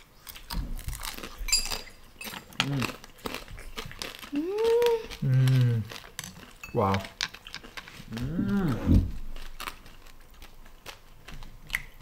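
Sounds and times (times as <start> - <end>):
chewing hard sugar shell: 0.0 - 12.0
person humming: 4.3 - 6.0, 8.1 - 9.1.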